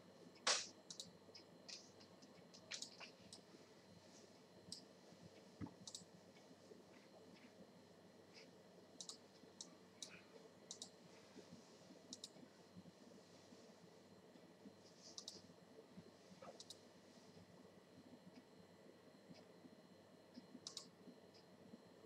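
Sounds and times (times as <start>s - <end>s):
computer mouse clicks: 0.4s - 3.4s, 4.7s - 4.9s, 5.6s - 6.1s, 9.0s - 11.0s, 12.1s - 12.4s, 15.1s - 15.4s, 16.4s - 16.8s, 20.3s - 21.5s.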